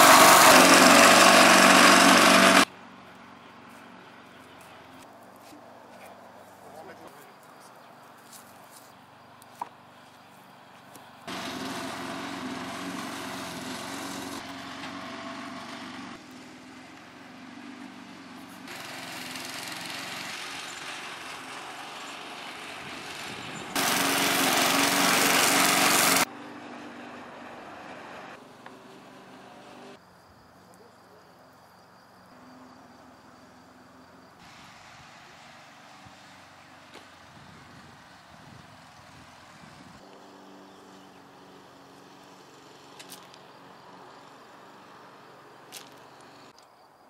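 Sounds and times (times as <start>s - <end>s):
engine running steadily: 0.0s - 5.0s.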